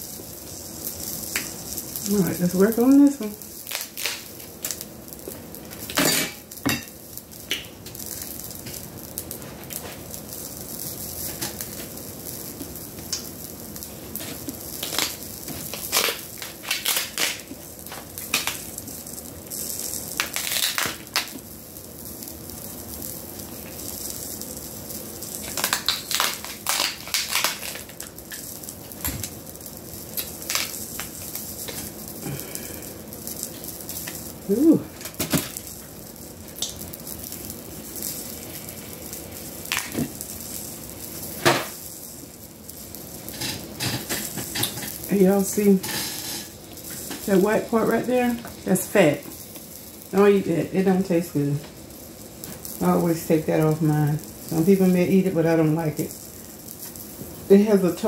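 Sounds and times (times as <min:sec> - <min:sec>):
crab shell cracking and crunching: 0:03.6 - 0:04.8, 0:14.5 - 0:18.7, 0:20.1 - 0:21.4, 0:25.4 - 0:28.4, 0:30.1 - 0:32.8, 0:39.6 - 0:40.2.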